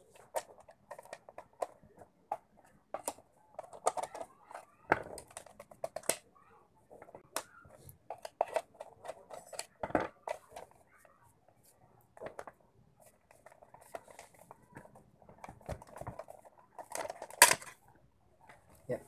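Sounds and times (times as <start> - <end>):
plastic clicks and knocks: 0.2 - 6.2, 7.0 - 10.8, 13.3 - 17.8.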